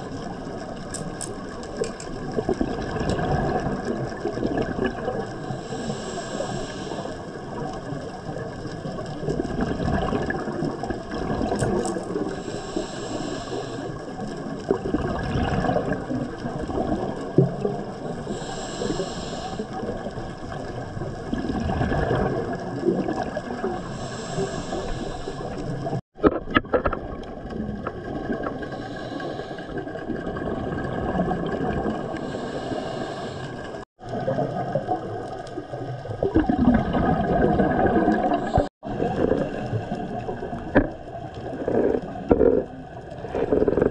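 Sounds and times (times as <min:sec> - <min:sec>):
gurgle of exhaled bubbles: 0:00.0 - 0:43.9
diver inhaling through regulator hiss: 0:05.4 - 0:07.3, 0:12.2 - 0:14.1, 0:18.2 - 0:19.8, 0:23.7 - 0:26.0, 0:28.6 - 0:29.9, 0:32.1 - 0:33.9.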